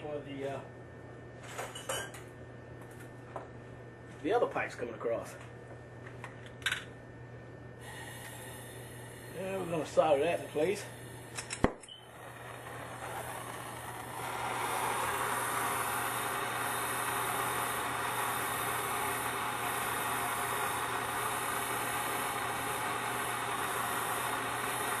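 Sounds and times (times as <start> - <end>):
gas torch hissing: 7.8 - 25.0.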